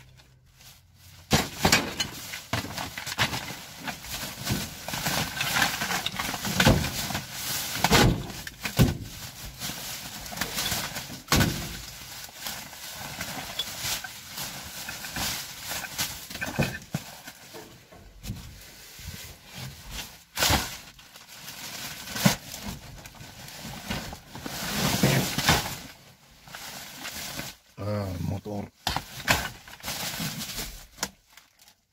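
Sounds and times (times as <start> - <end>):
plastic bag crinkling and rustling: 0.0 - 31.9
items knocking and clattering: 1.3 - 12.0, 13.0 - 18.5.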